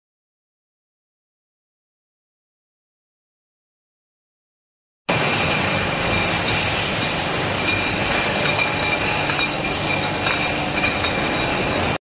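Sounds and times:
glass bottles clinking: 7.6 - 11.9.

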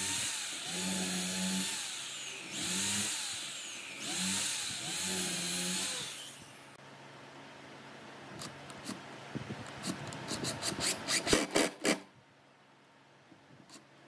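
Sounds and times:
electric drill boring into wood: 0.0 - 6.7.

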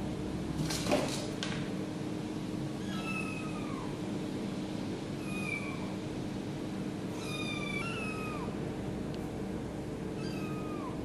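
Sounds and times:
steady low hum: 0.0 - 11.0
kitten mewing: 2.8 - 4.0, 5.2 - 6.0, 7.1 - 8.6, 10.2 - 11.0.

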